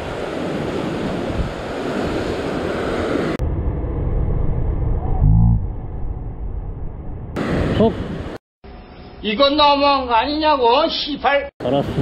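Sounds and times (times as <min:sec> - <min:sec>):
ocean surf on rocks: 0:00.0 - 0:03.4, 0:07.4 - 0:08.4
wind buffeting microphone: 0:00.0 - 0:08.4.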